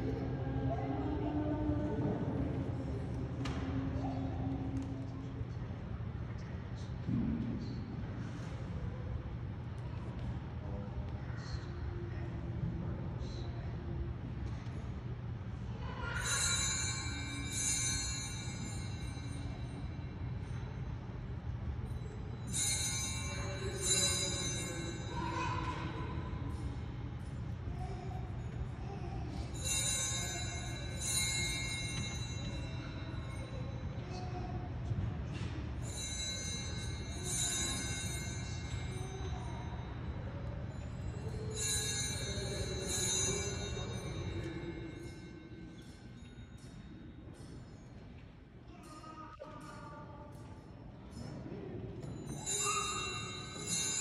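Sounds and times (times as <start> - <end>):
altar bells ringing: 16.0 - 48.2, 52.0 - 54.0.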